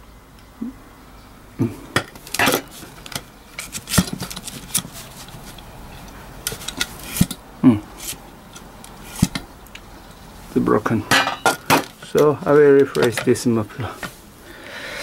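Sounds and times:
metal exhaust pipe clanking: 11.0s - 12.2s.

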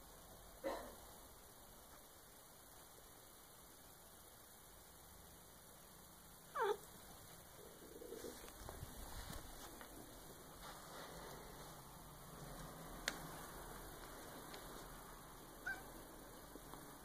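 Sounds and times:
faint steady hum: 0.0s - 17.0s
cat meowing: 15.6s - 16.0s.

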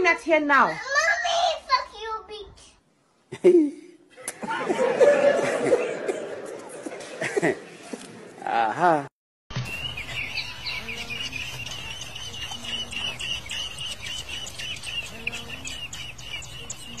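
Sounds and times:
nestling birds cheeping: 9.5s - 17.0s.

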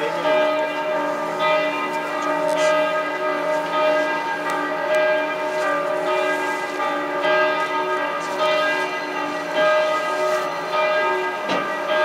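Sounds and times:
church bells ringing: 0.0s - 12.0s.

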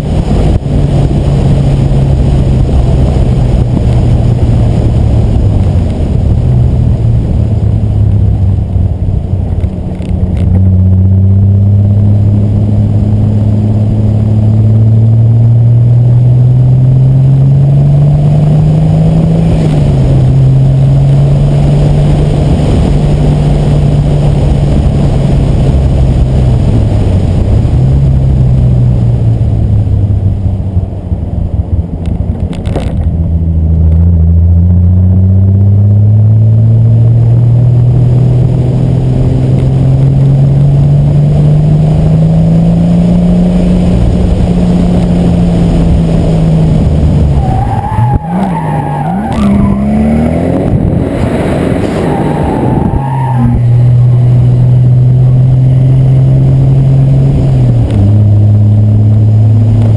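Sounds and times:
car engine revving: 0.0s - 59.9s
tyres squealing: 47.4s - 50.2s.

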